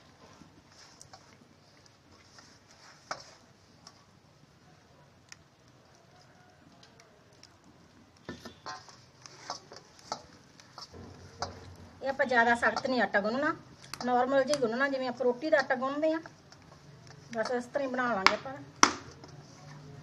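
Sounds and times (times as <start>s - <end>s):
dough squishing: 5.2s - 20.0s.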